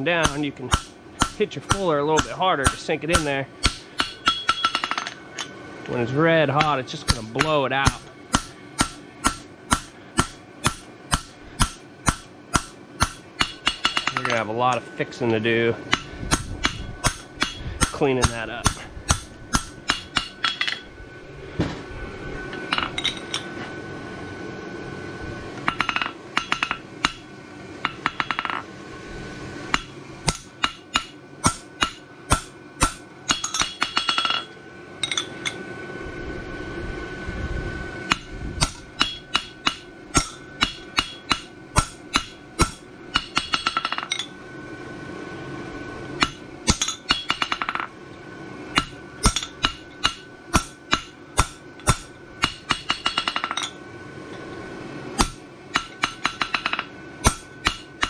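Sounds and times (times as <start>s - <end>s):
hammer ringing on anvil: 0.0s - 5.2s, 6.6s - 14.8s, 15.9s - 20.9s, 29.8s - 35.6s, 38.1s - 44.3s, 46.2s - 47.9s, 48.8s - 53.8s, 55.2s - 58.0s.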